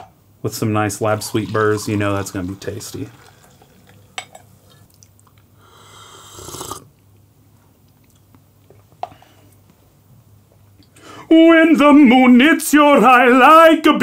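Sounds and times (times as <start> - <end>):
person slurping coffee: 5.6 - 6.9.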